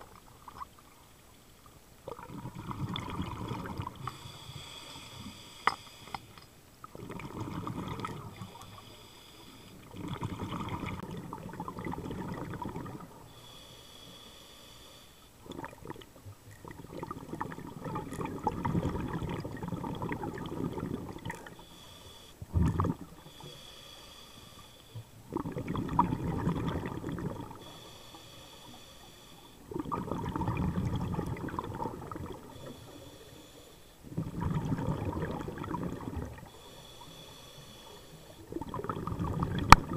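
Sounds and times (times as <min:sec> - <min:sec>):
bubbling exhalations: 0:02.1 - 0:04.1, 0:22.5 - 0:23.1, 0:25.3 - 0:27.6, 0:29.7 - 0:32.5, 0:34.1 - 0:36.5, 0:38.5 - 0:39.9
inhalations with high hiss: 0:04.0 - 0:06.4, 0:13.3 - 0:15.3, 0:21.6 - 0:22.4, 0:23.2 - 0:25.1, 0:27.6 - 0:29.6, 0:36.5 - 0:38.5.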